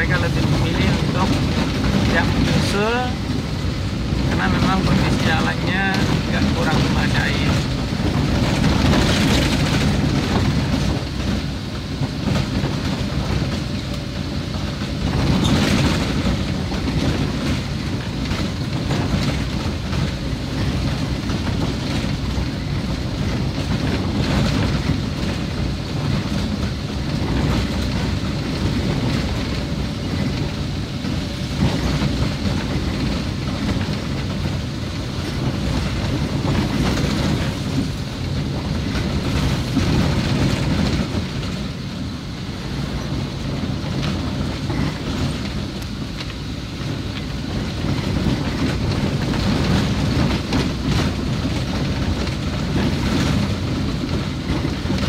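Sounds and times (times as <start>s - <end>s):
tyres and engine rumble: 0.0s - 55.0s.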